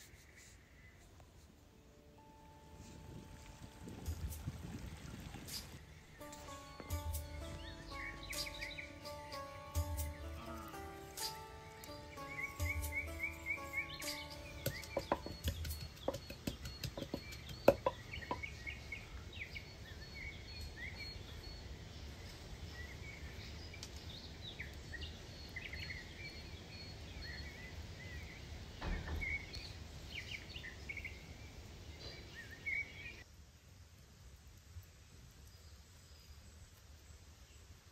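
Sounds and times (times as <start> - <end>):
small birds chirping: 2.8 - 33.2
sharp knocks and clicks: 14.1 - 18.5.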